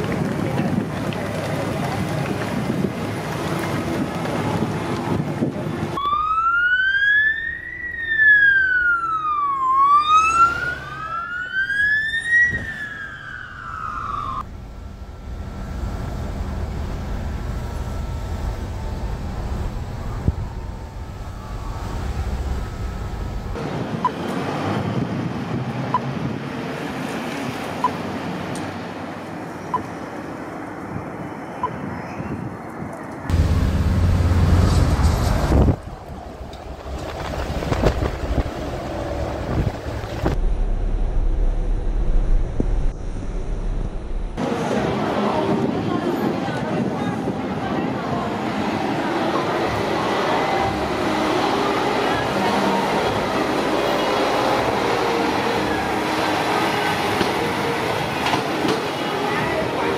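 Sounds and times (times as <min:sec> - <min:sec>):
wind noise: 0:00.0 - 0:06.0, 0:14.4 - 0:28.4, 0:30.7 - 0:50.8
street traffic: 0:00.0 - 0:59.9
fire truck siren wailing: 0:05.8 - 0:23.6, 0:48.9 - 0:59.9
road rumble inside car: 0:14.4 - 0:24.2, 0:33.2 - 0:44.6.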